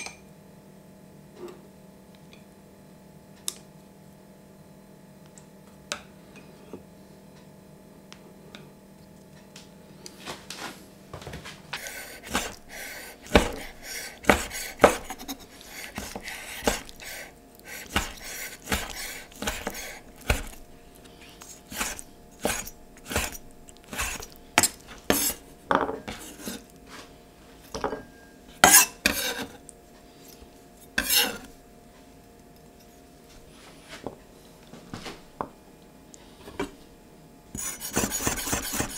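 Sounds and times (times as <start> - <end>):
knife chopping on wooden board: 12.2 - 12.6, 13.2 - 17.1, 17.8 - 20.6, 21.7 - 26.6, 37.6 - 38.9.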